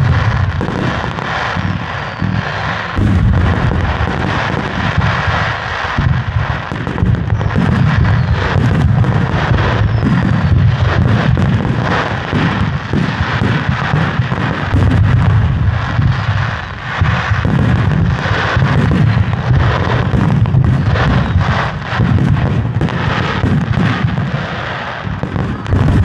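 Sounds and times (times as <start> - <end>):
fireworks booming: 0.0 - 26.0
sharp firework cracks: 0.0 - 26.0.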